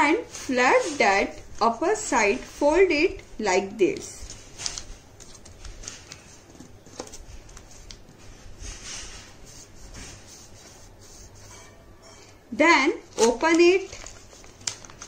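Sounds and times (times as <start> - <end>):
paper rustling being folded: 3.9 - 11.6, 13.0 - 15.0.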